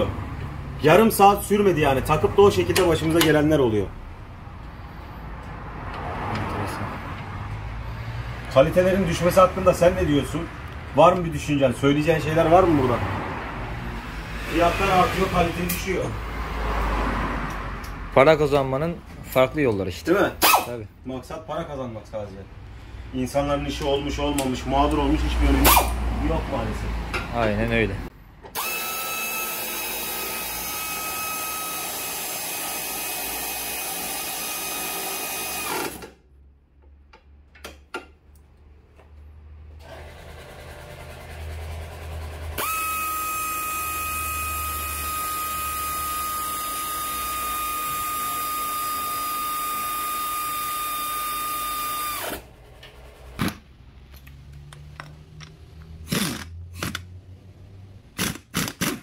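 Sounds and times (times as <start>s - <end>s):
air ratchet whining: 20.4s - 20.8s, 25.6s - 26.0s, 28.5s - 36.2s, 42.5s - 52.5s, 56.0s - 57.1s, 58.1s - 59.0s.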